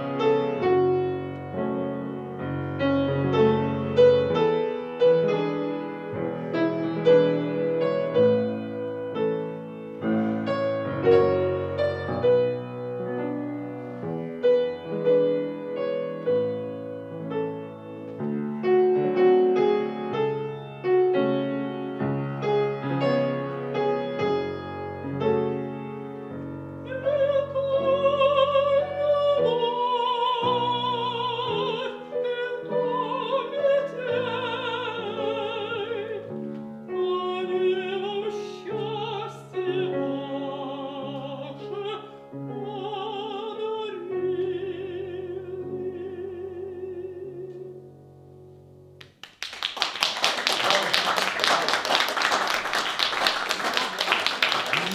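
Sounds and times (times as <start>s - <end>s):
grand piano accompaniment: 0.0s - 54.9s
woman singing with vibrato: 26.9s - 36.3s, 36.9s - 47.7s
audience applause: 49.0s - 54.9s.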